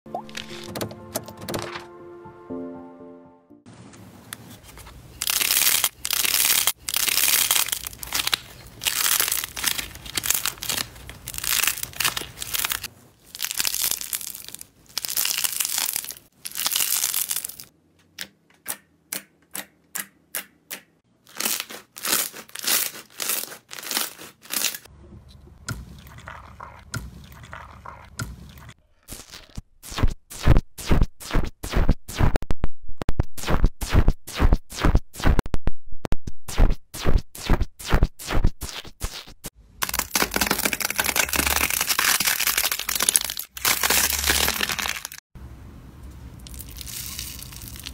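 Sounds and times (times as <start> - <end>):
slime crackling and crinkling: 5.2 - 17.7, 21.2 - 24.9, 39.8 - 45.2, 46.5 - 47.9.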